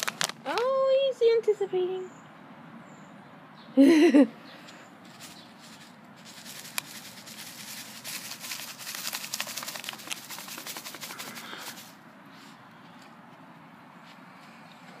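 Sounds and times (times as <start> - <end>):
plastic pouch crinkling: 0.0 - 0.6, 5.1 - 12.0.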